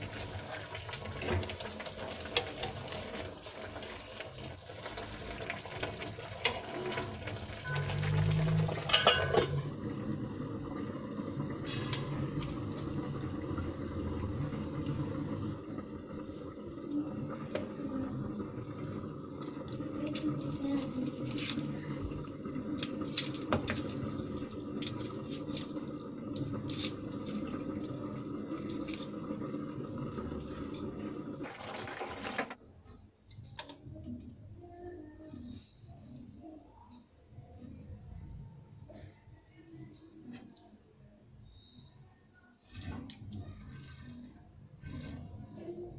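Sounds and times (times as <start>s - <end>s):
water sloshing as pasta is stirred: 0.0s - 9.9s, 10.8s - 32.6s
metal lid clinking on a pot: 8.8s - 9.6s.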